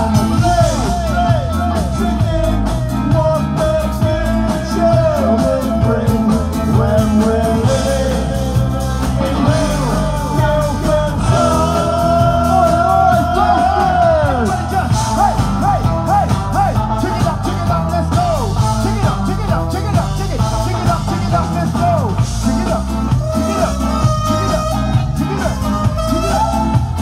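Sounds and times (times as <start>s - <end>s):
bass guitar: 0.0s - 27.0s
drums: 0.0s - 27.0s
person singing: 0.0s - 27.0s
ska band playing: 0.0s - 27.0s
trumpet: 6.9s - 27.0s.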